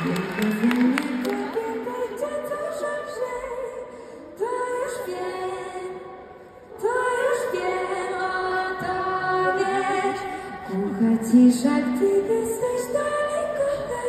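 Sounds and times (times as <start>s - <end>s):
woman singing long held notes: 0.0s - 14.0s.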